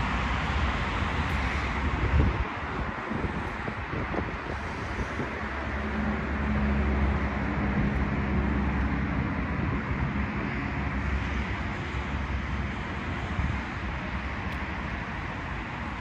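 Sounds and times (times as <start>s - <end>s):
heavy vehicle engine humming: 0.0s - 16.0s
urban background noise: 0.0s - 16.0s.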